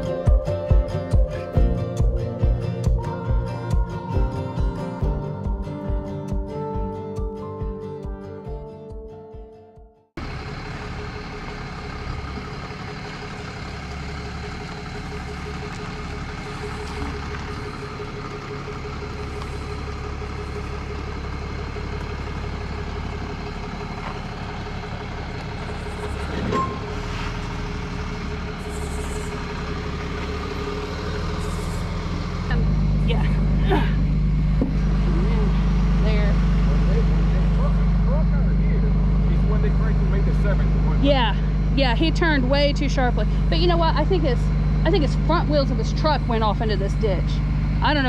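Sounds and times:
diesel engine idling: 0.0 - 8.6, 10.2 - 48.0
engine whine: 0.0 - 9.0, 10.1 - 48.0
music: 0.0 - 10.1.

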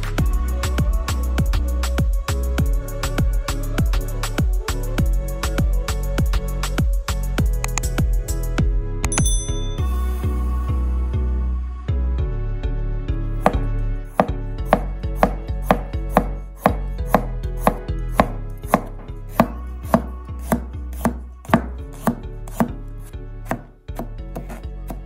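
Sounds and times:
knife chopping on cutting board: 13.4 - 22.8, 23.4 - 25.0.

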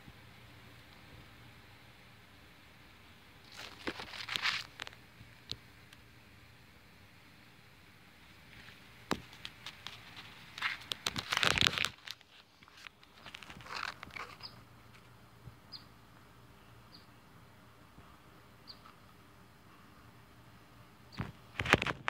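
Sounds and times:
shrub leaves rustling: 3.4 - 5.0, 8.3 - 15.1.

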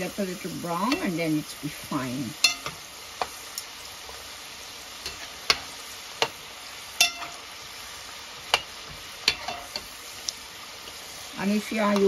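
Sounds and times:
fries sizzling in hot oil: 0.0 - 12.0
metal spoon clinking on pot: 7.0 - 7.4.

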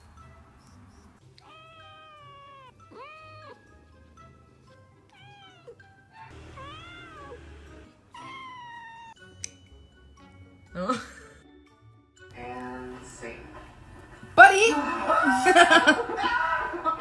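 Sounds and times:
background music: 0.0 - 17.0
cat meowing: 1.4 - 3.7, 5.0 - 9.3.

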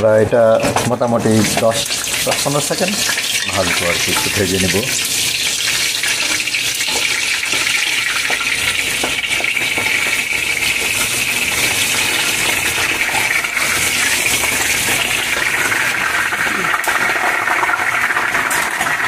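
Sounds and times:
spices sizzling in hot oil: 0.1 - 19.0.

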